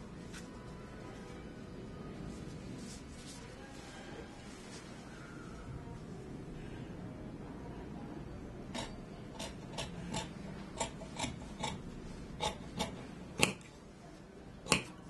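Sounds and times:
shears snipping fabric: 12.4s - 13.7s.

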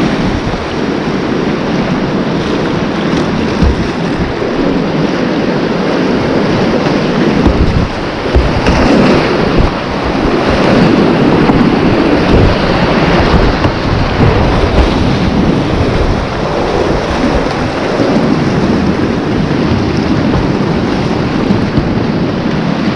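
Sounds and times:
whitewater rapids rushing: 0.0s - 22.9s
wind buffeting microphone: 0.0s - 22.9s.

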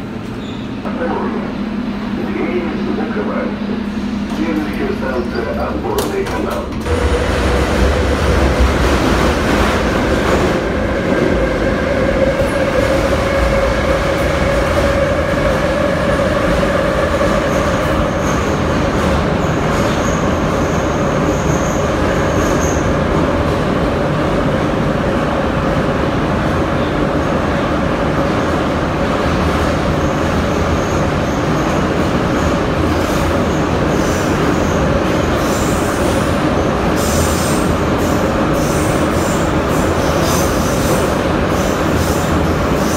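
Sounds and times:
metro wheels on rail: 2.9s - 42.9s.

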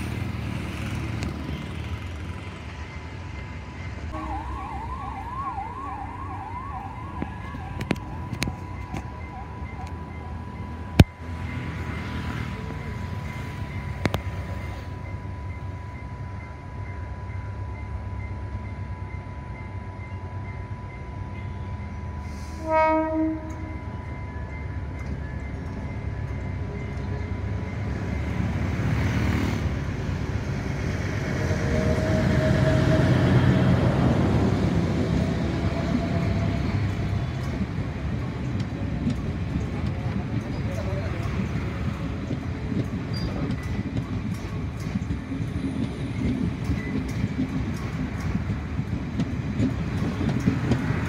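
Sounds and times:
train engine and wheels rumbling: 0.0s - 51.0s
train horn blast: 4.1s - 5.0s, 22.3s - 23.8s.

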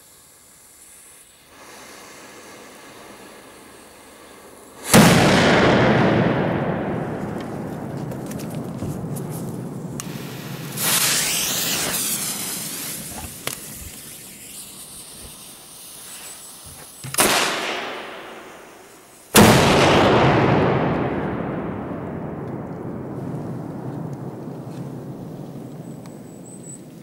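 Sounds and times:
firecrackers banging: 1.6s - 27.0s
rumbling echo: 5.0s - 13.1s, 19.4s - 26.5s.

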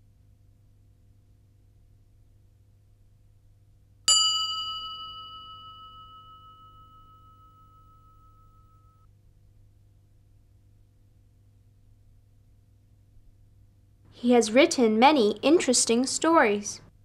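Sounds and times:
bell ringing: 4.1s - 9.0s.

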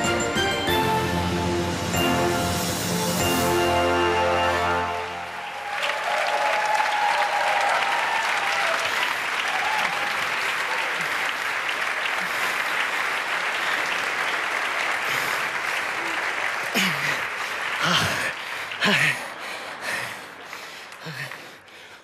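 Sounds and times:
dance music: 0.0s - 5.4s
audience applauding: 4.6s - 22.0s.

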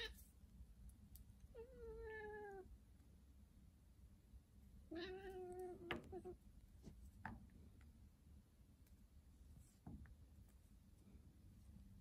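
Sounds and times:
cat meowing: 1.6s - 2.7s, 4.9s - 6.4s.

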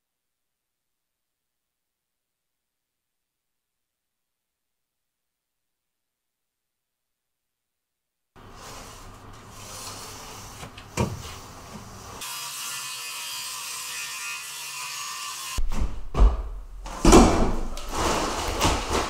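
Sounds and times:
circular saw cutting plywood: 11.5s - 15.6s
plywood sheets handled: 16.9s - 19.0s.

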